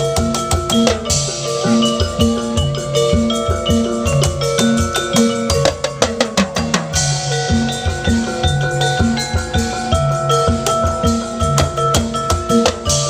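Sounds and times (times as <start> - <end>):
upbeat instrumental music: 0.0 - 13.0
drum fill: 0.8 - 8.2.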